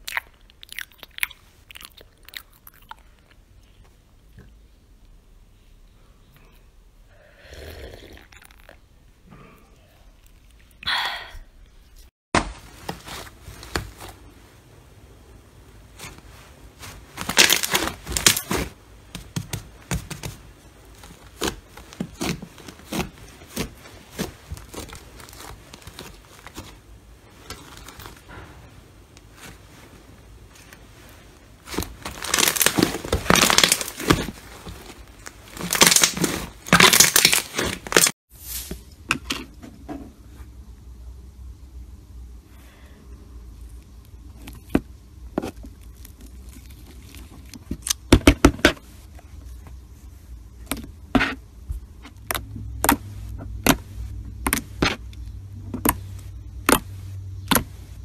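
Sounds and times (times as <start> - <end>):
slime crackling and popping: 17.2 - 18.7, 31.6 - 38.2.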